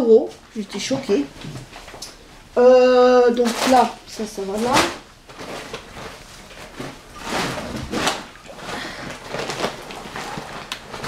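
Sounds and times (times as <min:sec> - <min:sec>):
plastic bags rustling: 0:00.6 - 0:11.0
plastic bag swung: 0:04.6 - 0:11.0.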